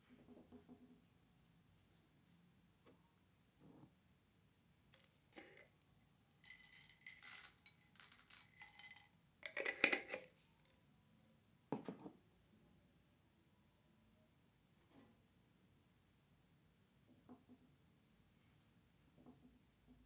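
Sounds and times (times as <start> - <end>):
hard candies rattling into a bowl: 5.0 - 5.7, 6.4 - 10.8.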